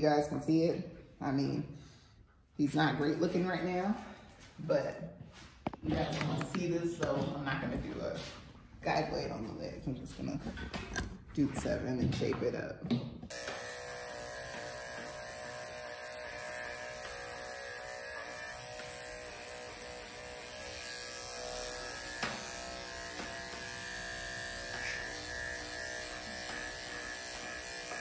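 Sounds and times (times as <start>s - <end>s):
electric clipper buzzing: 13.3s - 28.0s.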